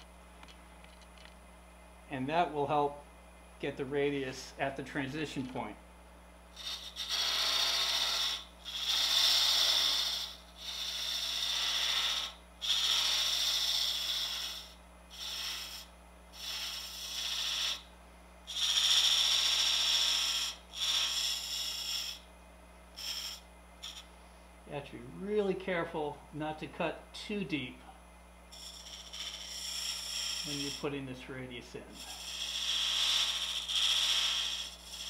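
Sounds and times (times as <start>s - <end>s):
steady low hum: 0.0s - 35.0s
lathe tool scraping wood: 6.6s - 17.8s, 18.5s - 22.2s, 28.6s - 31.2s, 31.8s - 35.0s.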